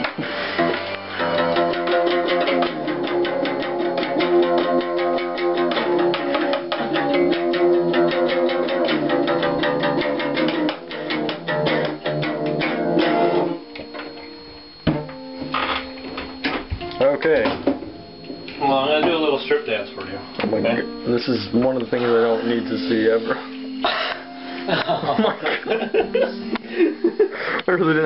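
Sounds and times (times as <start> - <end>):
acoustic guitar strumming: 0.0 - 28.0.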